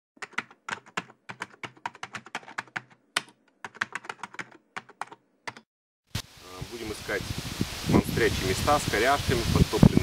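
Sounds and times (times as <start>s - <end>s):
keyboard key clicks: 0.2s - 5.7s.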